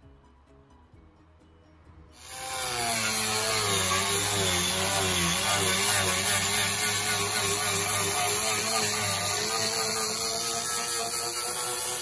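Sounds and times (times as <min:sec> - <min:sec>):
loud air hiss: 0:02.2 - 0:04.4
air sander whining: 0:02.2 - 0:12.0.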